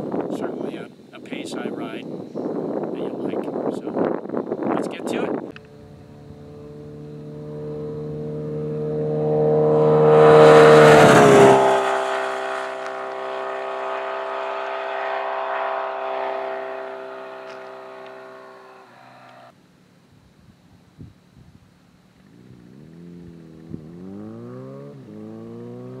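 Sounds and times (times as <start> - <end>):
motorcycle passing by: 5.5 - 19.5, 22.2 - 26.0.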